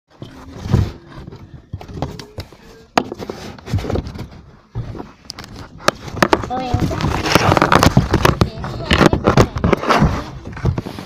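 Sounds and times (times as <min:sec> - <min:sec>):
faint voice: 0:08.3 - 0:10.4.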